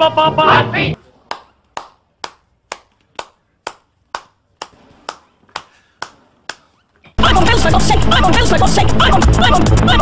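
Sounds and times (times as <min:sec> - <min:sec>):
person clapping slowly: 0:01.3 - 0:06.7.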